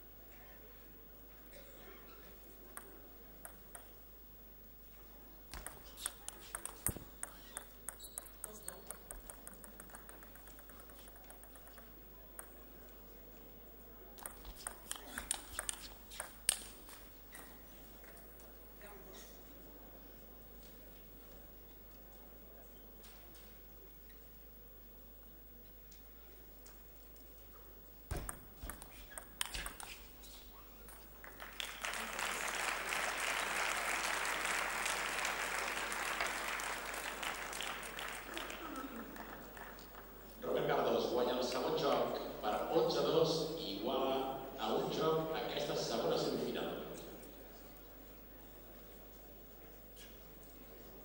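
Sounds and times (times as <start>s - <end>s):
table tennis ball bouncing: 2.7s - 4.0s, 5.5s - 12.7s, 14.2s - 16.7s, 28.1s - 30.2s
table tennis rally clicks: 2.7s - 4.0s, 5.5s - 13.0s, 14.2s - 18.4s, 28.1s - 40.1s
audience applause: 31.2s - 39.8s.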